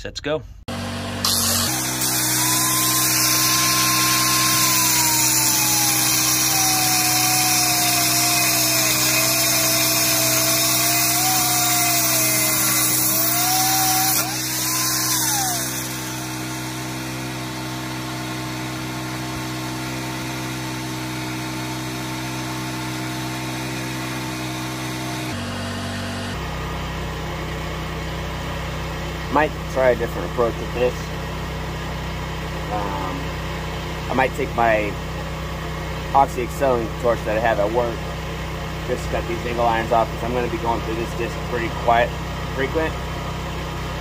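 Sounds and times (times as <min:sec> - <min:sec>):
steady engine hum: 0:00.0 - 0:44.0
angle grinder cutting steel: 0:00.7 - 0:25.4.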